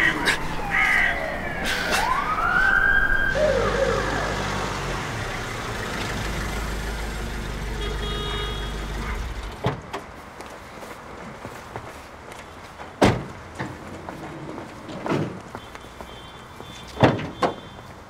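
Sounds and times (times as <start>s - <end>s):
siren whoop: 0.0s - 4.8s
van engine running: 3.4s - 9.6s.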